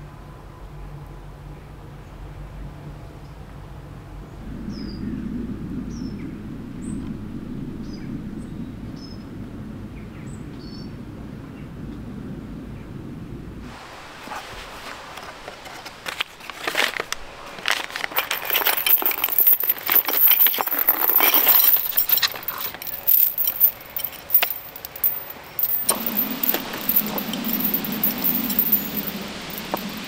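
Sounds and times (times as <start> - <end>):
steady low hum: 2.2 - 13.6
packing paper rustling: 15.4 - 28.4
iron chain clinking: 17.9 - 30.0.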